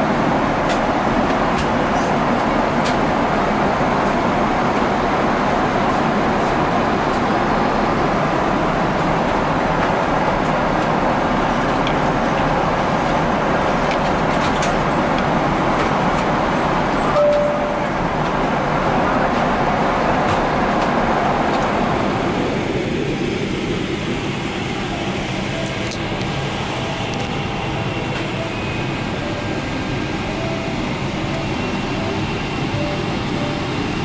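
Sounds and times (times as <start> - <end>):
airliner cabin noise: 0.0 - 34.0
short single tone: 17.0 - 17.9.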